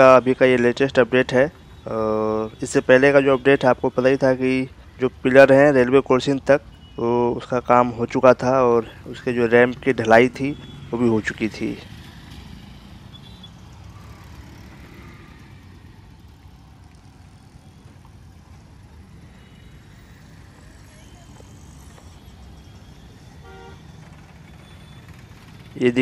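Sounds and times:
auto-rickshaw and motorbike engines: 0.0 - 26.0
low traffic rumble: 0.0 - 26.0
short horn beep: 23.4 - 23.9.

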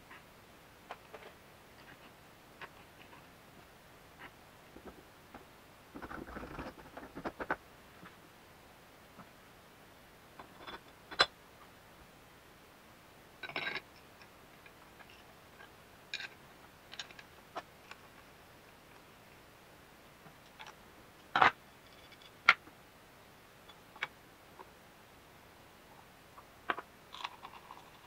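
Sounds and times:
metal parts clicking and tapping: 16.1 - 17.3.

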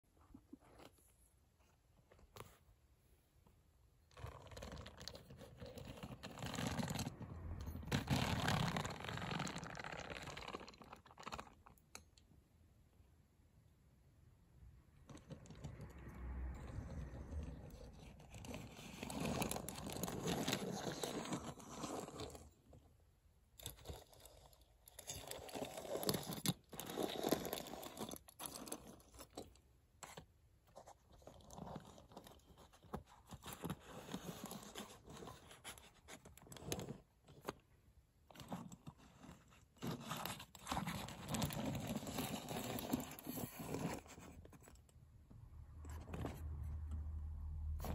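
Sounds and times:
toy trucks rolling on wooden floor: 38.8 - 44.6.

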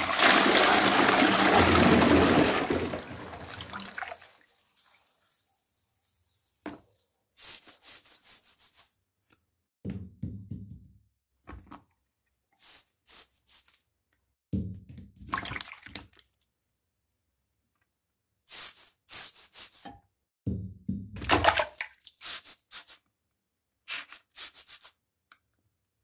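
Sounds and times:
toilet flushing: 0.0 - 6.8.

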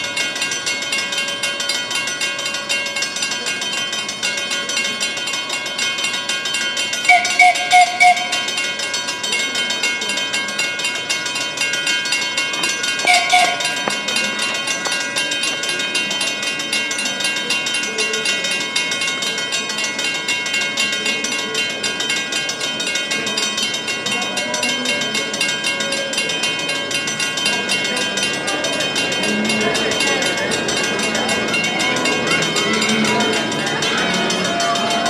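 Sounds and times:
crossing warning bells ringing: 0.0 - 35.0
train horn blast: 7.1 - 8.4, 13.1 - 13.8
train rumble: 10.4 - 20.1.

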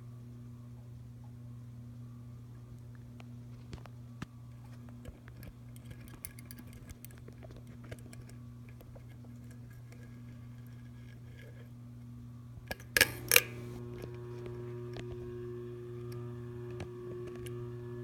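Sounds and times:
ceiling fan motor humming: 0.0 - 18.0
handling clicks: 12.7 - 15.2.

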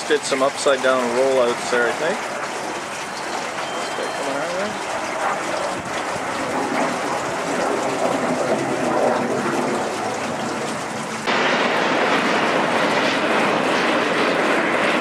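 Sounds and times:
jet aircraft passing overhead: 0.0 - 15.0.

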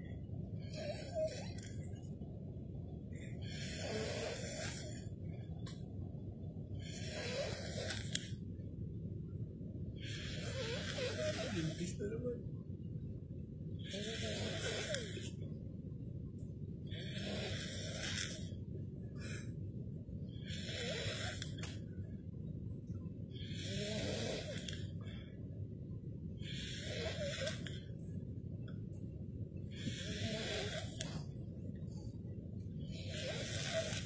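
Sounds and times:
man snoring: 0.7 - 1.6, 3.4 - 5.0, 6.8 - 8.2, 10.0 - 12.0, 13.8 - 15.3, 16.9 - 18.5, 20.4 - 21.6, 23.4 - 24.8, 26.5 - 27.8, 29.8 - 31.1, 32.9 - 34.0.

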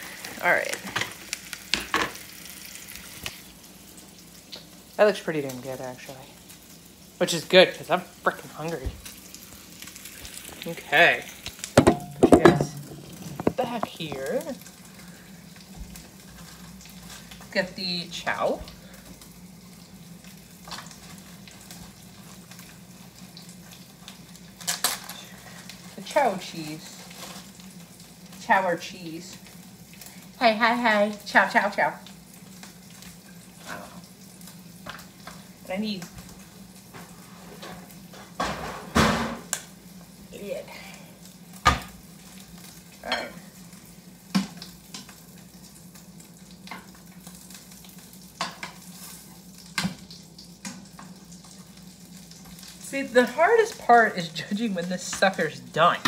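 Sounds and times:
meat sizzling in a pan: 0.0 - 56.0
low steady hum: 7.8 - 36.9.

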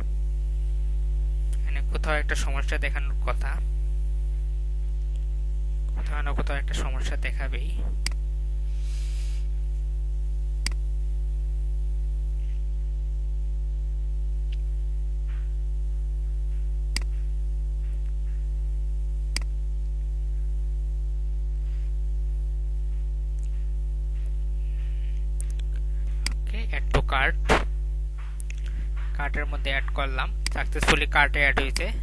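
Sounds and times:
electrical mains hum: 0.0 - 32.0
mouse clicks: 16.9 - 17.1.

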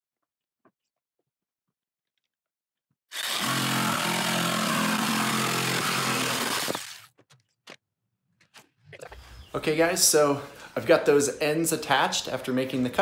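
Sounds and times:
jigsaw cutting through board: 3.1 - 7.1.

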